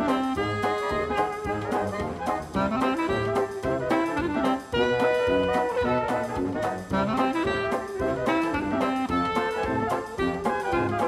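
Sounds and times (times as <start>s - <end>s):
upbeat jazzy music with brass: 0.0s - 11.0s.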